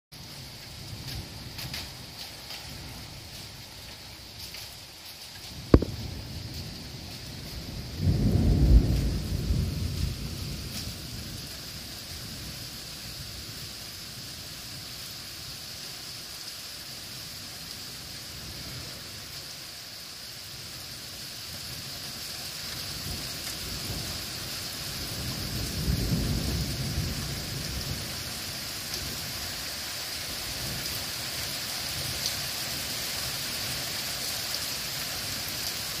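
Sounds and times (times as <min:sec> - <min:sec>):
rain hissing: 0:00.1 - 0:36.0
thunder rumbling: 0:05.6 - 0:12.6, 0:25.0 - 0:28.4.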